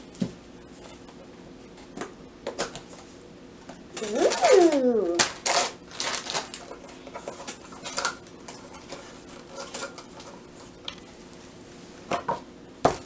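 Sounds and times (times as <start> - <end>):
foil wrappers crinkling: 4.0 - 11.0.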